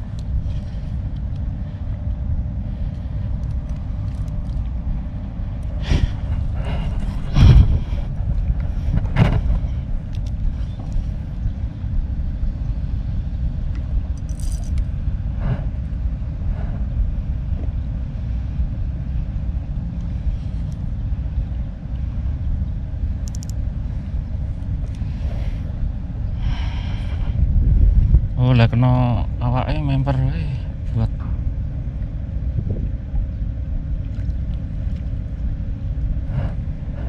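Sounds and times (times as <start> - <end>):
faint clicks and rustles: 0.0 - 4.8
wind buffeting microphone: 0.0 - 30.1, 30.7 - 37.0.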